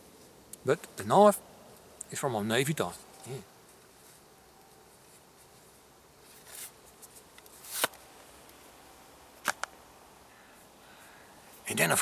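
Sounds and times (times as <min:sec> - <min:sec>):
rustling and handling: 0:02.8 - 0:08.8.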